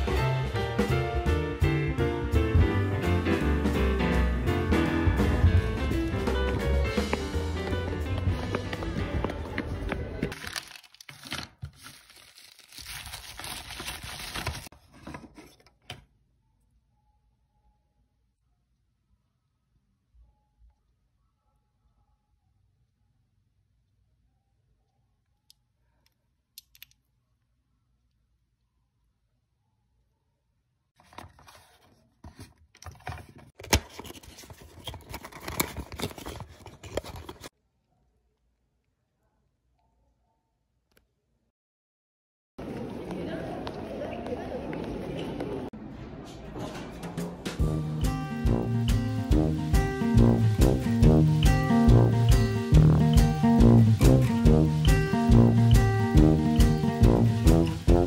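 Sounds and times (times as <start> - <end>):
background music: 0.0 - 10.2, 47.2 - 58.0
bubble wrap crinkling: 10.3 - 14.8.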